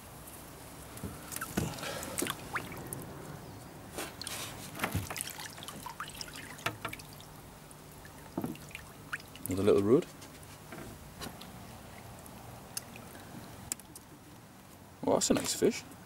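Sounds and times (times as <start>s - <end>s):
water trickling and splashing: 0.9s - 10.4s, 11.3s - 14.1s.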